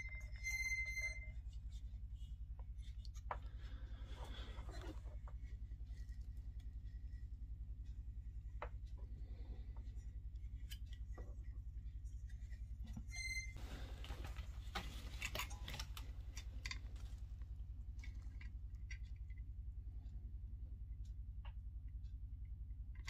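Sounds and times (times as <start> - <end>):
steady low hum: 0.0 - 23.0
rustling: 9.2 - 18.5
metal parts clicking and tapping: 14.1 - 17.4.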